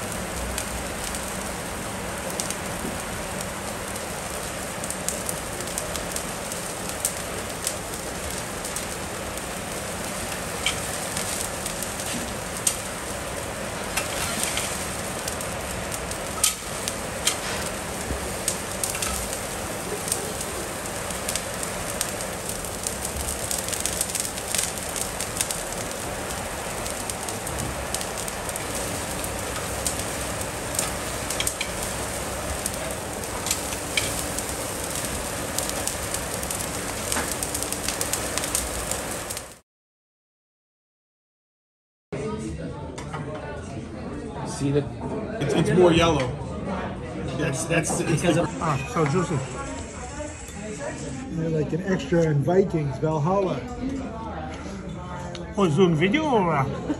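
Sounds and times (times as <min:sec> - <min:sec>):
fire crackles and pops: 0:00.0 - 0:39.6
meat sizzling on grill: 0:00.0 - 0:39.6, 0:47.4 - 0:52.9.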